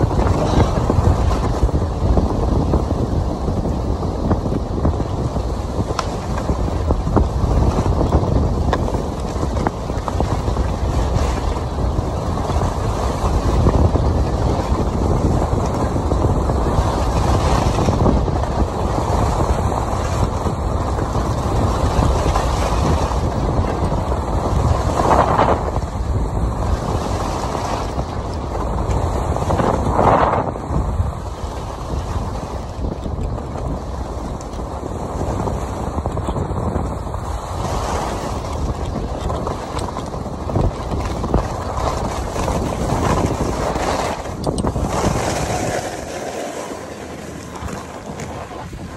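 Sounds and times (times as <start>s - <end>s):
skis scraping on snow: 0.0s - 48.9s
wind rushing over microphone: 0.0s - 48.9s.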